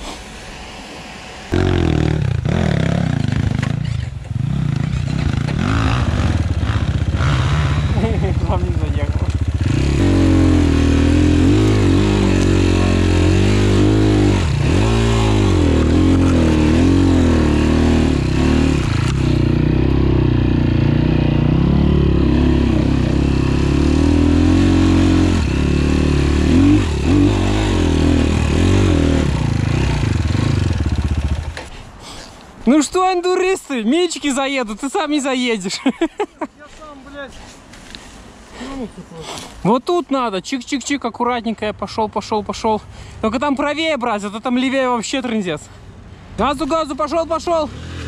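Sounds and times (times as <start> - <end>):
dirt bike engine revving: 1.5 - 31.6, 47.6 - 48.0.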